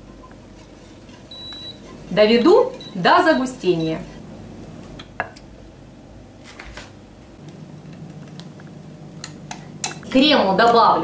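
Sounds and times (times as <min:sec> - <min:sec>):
low steady hum: 0:07.0 - 0:11.0.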